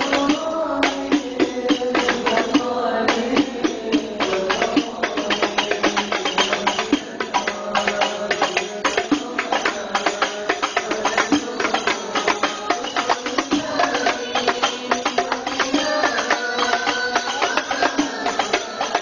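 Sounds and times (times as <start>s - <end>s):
frame drums struck by hand: 0.0s - 19.0s
men singing devotional song: 0.0s - 19.0s.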